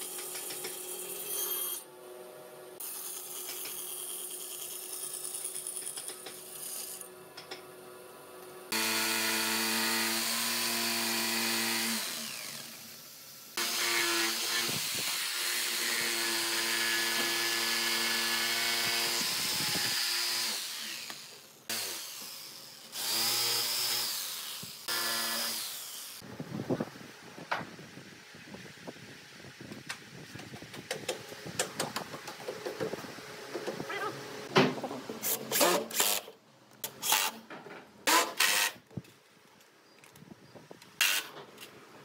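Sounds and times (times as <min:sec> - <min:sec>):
quiet work noise: 0:00.0 - 0:42.0
power tool motor running: 0:08.7 - 0:26.2.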